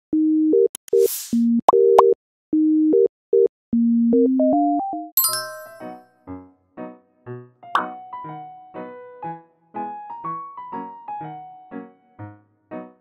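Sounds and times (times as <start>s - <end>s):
keyboard chords: 3.8s - 6.4s, 7.8s - 8.5s
electronic beep melody: 4.1s - 6.0s.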